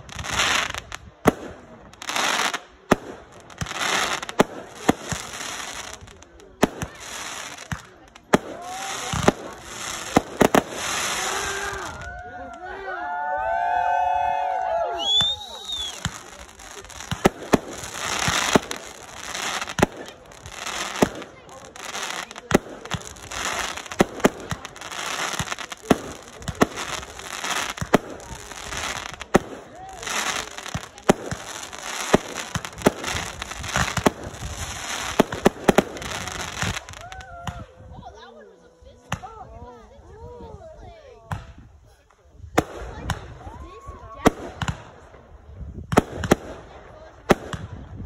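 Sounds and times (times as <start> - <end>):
fireworks bangs: 0.0 - 12.3, 13.6 - 37.7, 42.5 - 48.0
fireworks crackling: 0.0 - 12.7, 13.5 - 38.2, 39.0 - 48.0
crackling hiss of bursting stars: 2.0 - 12.2.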